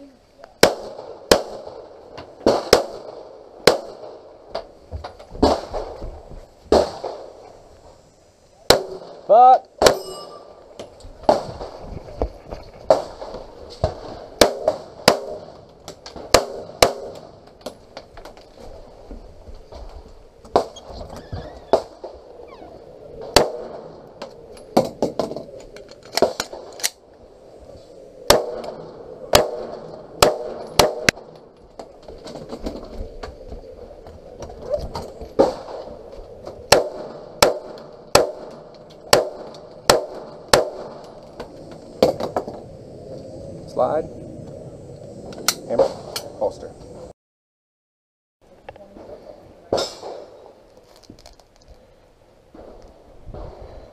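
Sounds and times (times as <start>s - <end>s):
pistol shots: 0.6s - 4.2s, 8.7s - 10.0s, 14.4s - 15.6s, 16.2s - 17.3s, 28.3s - 31.3s, 36.7s - 41.1s.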